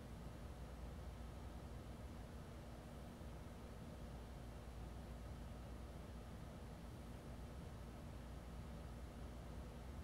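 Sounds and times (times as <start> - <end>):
ceiling fan running: 0.0 - 5.6.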